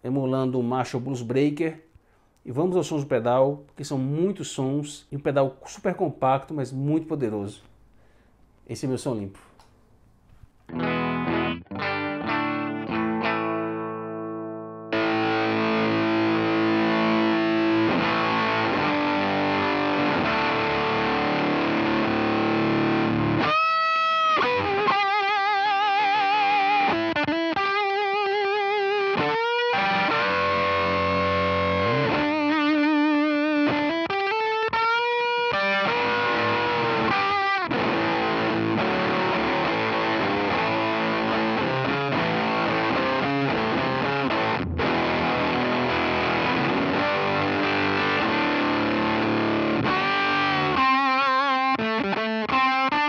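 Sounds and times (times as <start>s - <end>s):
fuzzed electric guitar: 10.7s - 53.0s.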